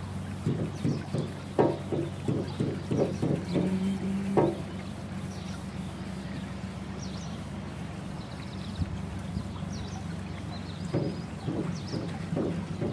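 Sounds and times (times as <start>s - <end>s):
boat engine running: 0.0s - 12.9s.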